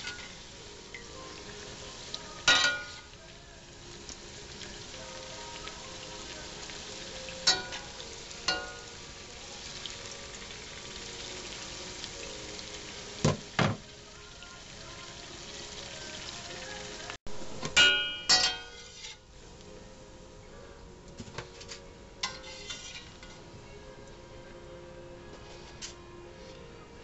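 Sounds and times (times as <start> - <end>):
dough sizzling in hot oil: 0.0 - 17.2, 22.2 - 23.4
wire skimmer clanking on steel pan: 2.4 - 3.1, 7.4 - 8.9, 17.6 - 19.2, 22.2 - 23.4.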